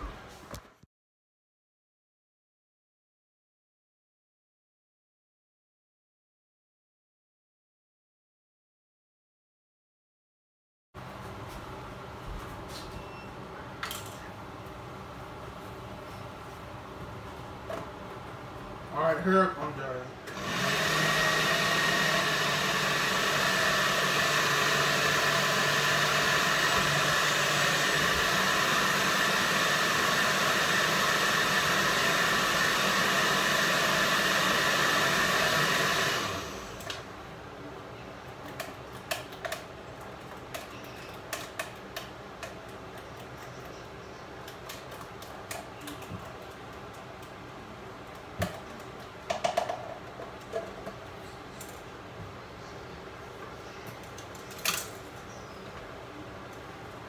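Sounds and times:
blender running: 20.3 - 37.0.

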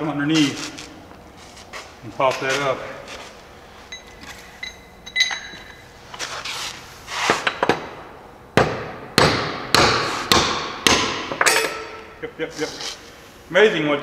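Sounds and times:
ringing metallic clinks: 3.9 - 5.9.

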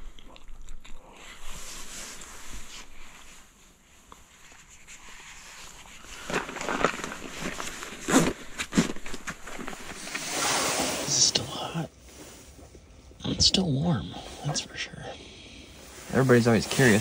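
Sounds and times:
fabric rustling: 1.6 - 13.0, 15.7 - 17.0.

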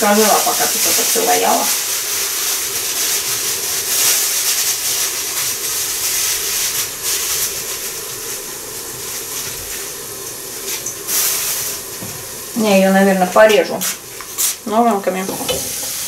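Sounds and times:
fine crackle: 0.0 - 16.0
vegetables sizzling in a pan: 0.0 - 16.0.

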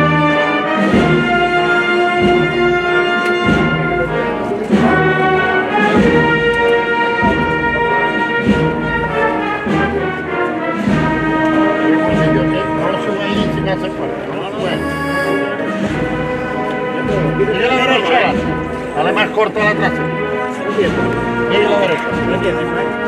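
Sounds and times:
brass chords: 0.0 - 23.0
slow drum beat: 10.9 - 19.0.

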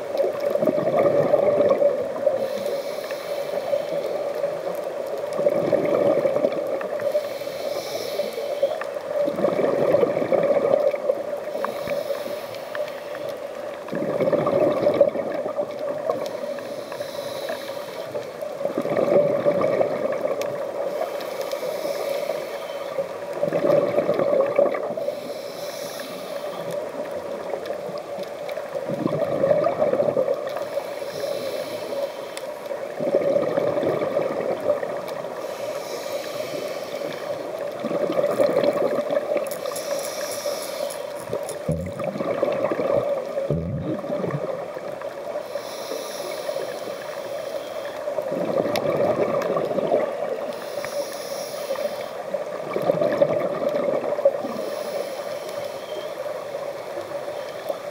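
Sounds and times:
exhaled bubbles rushing: 0.4 - 2.0, 5.4 - 6.8, 9.2 - 11.1, 13.9 - 16.0, 18.6 - 20.5, 23.4 - 25.0, 28.9 - 30.5, 32.9 - 35.0, 37.7 - 39.5, 41.2 - 45.0, 48.3 - 50.2, 52.6 - 54.5
diver breathing through regulator: 2.3 - 4.3, 7.0 - 8.8, 11.5 - 13.4, 16.3 - 18.4, 20.8 - 23.1, 25.0 - 26.8, 30.6 - 32.6, 35.3 - 37.5, 39.6 - 42.1, 45.4 - 48.1, 50.5 - 52.3, 54.4 - 56.2.

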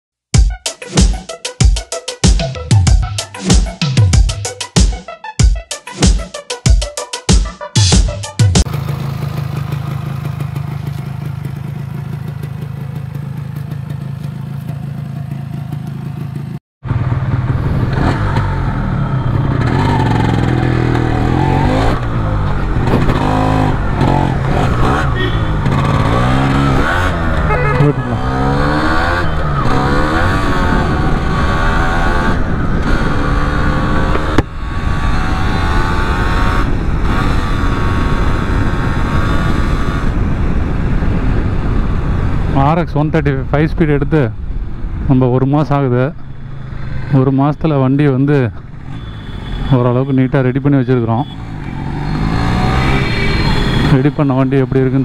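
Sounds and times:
motorcycle engine idling: 8.7 - 17.6
motorcycle accelerating through gears: 8.7 - 42.6, 46.2 - 47.4, 51.2 - 55.0.

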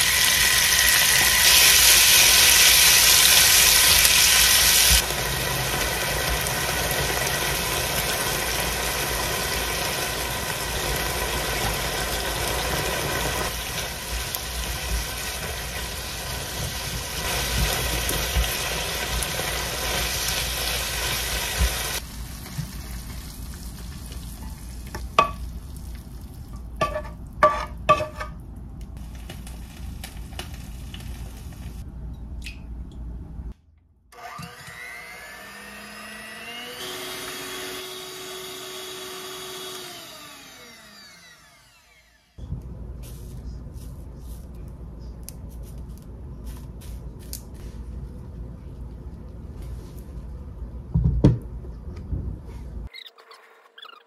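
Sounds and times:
food sizzling in a pan: 0.0 - 25.6.

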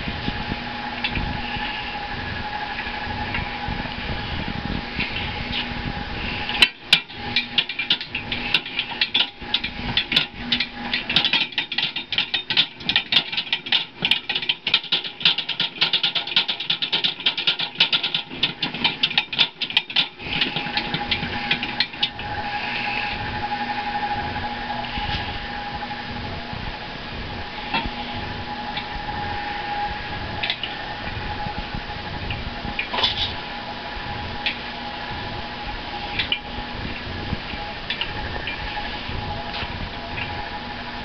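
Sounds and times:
mixer mechanical whine: 0.0 - 41.0
rapid clatter of clicks: 6.5 - 22.3.

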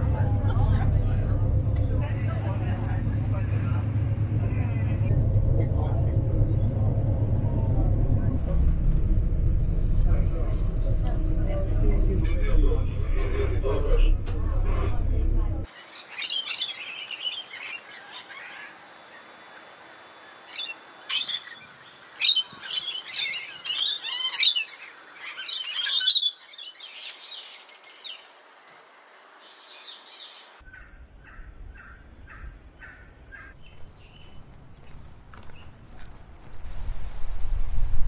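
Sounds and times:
steady high whine: 0.0 - 15.7
faint bird calls: 29.5 - 34.5.

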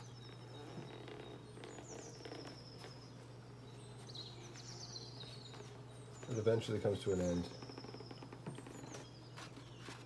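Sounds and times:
bird singing: 0.0 - 10.0
steady low hum: 0.0 - 10.0
book pages rustling: 8.5 - 10.0.

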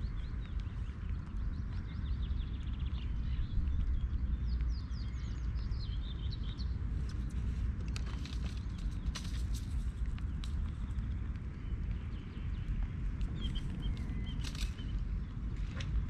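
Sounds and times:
small birds chirping and whistling: 0.0 - 15.5
steady low rumble: 0.0 - 16.0.

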